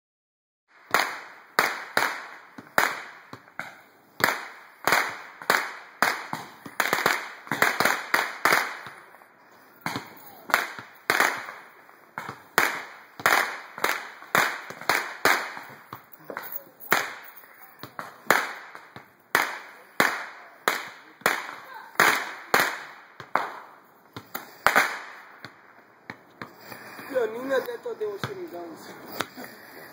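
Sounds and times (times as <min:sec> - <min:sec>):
fireworks banging: 0:00.8 - 0:29.9.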